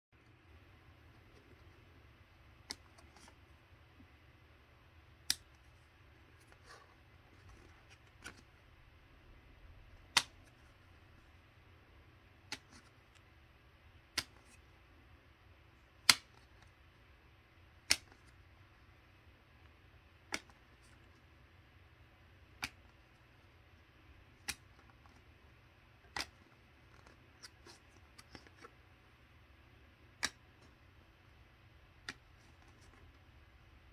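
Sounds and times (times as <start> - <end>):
card rustling: 1.0 - 3.6, 5.4 - 8.7, 22.5 - 29.0, 32.0 - 33.4
cards snapping: 2.6 - 3.4, 5.2 - 5.7, 9.9 - 10.8, 14.0 - 14.7, 16.0 - 16.7, 17.8 - 18.4, 20.2 - 21.1, 22.5 - 23.0, 24.2 - 25.3, 26.0 - 28.8, 30.1 - 30.7.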